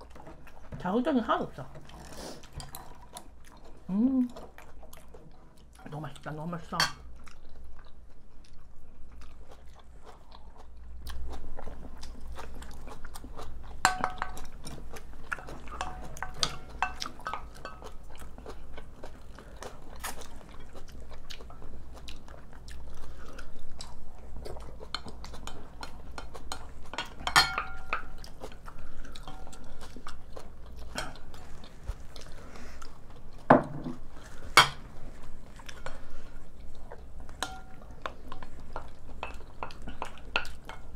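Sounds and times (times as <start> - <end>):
chewing and crunching: 0.0 - 40.9
spoon clinking on bowl: 27.3 - 28.1.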